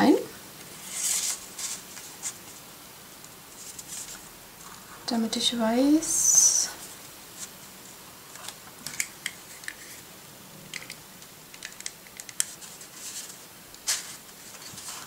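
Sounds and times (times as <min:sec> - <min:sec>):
paper rustling: 0:00.6 - 0:02.6, 0:03.5 - 0:04.8, 0:12.2 - 0:15.0.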